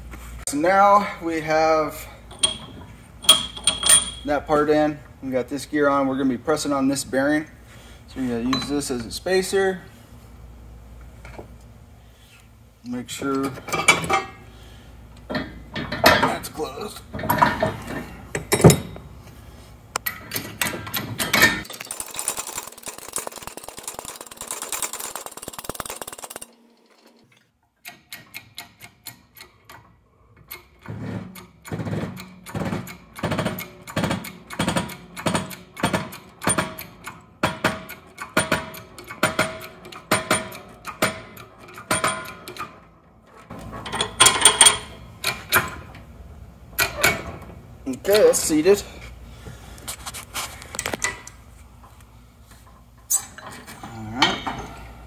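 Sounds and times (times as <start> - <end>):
metal clatter: 2.3 - 4.3, 20.3 - 27.0
metal clanks: 2.3 - 4.4, 43.4 - 46.1.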